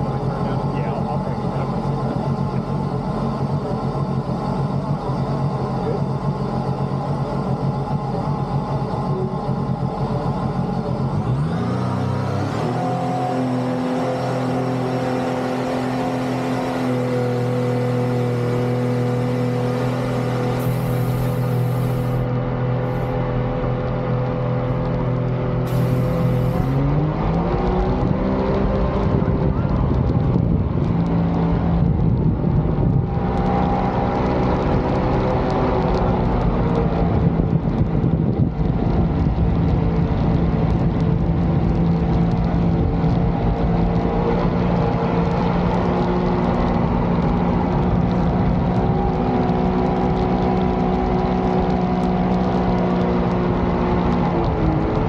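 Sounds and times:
jet boat engine revving: 0.0s - 29.2s.

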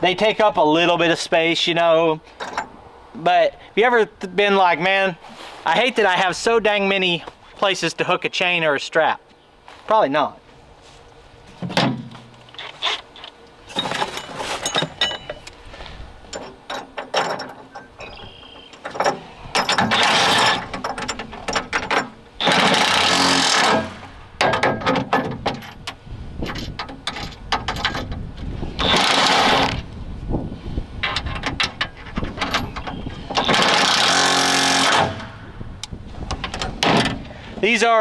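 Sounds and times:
clinks and knocks of hardware: 2.4s - 2.7s, 11.6s - 15.6s, 16.3s - 28.2s
impact driver running bolts: 18.9s - 24.2s, 28.8s - 29.8s, 33.4s - 35.4s.

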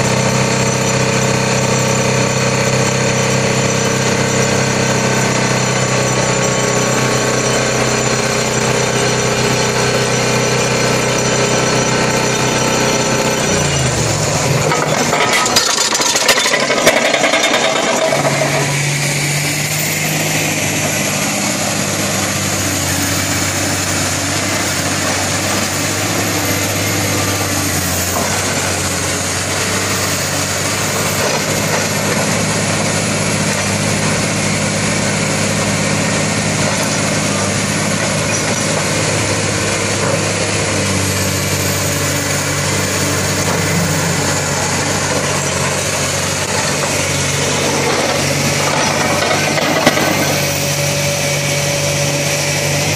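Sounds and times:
excavator engine running: 0.0s - 52.9s
vibratory pile hammer humming: 0.1s - 52.9s
sharp metal knocks and clanks: 14.6s - 18.8s.

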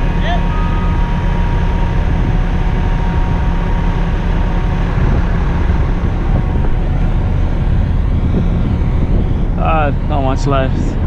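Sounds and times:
heavy diesel engines rumbling: 0.0s - 11.0s.

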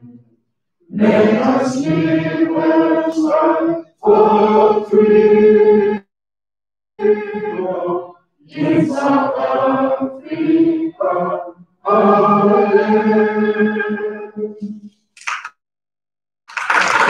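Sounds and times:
voices singing together: 0.9s - 6.1s, 7.0s - 14.9s.

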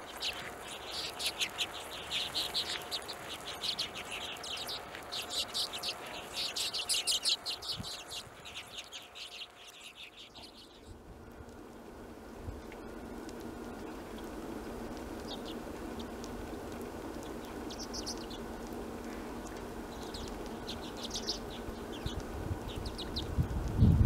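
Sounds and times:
birds giving high dry call notes: 0.0s - 23.4s
low background hiss: 0.0s - 24.0s.

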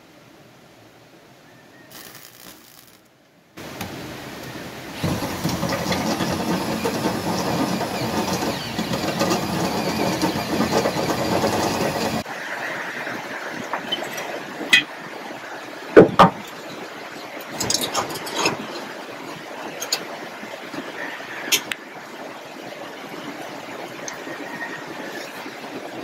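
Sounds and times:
electric arc welder crackling: 1.9s - 3.1s, 5.0s - 12.2s.

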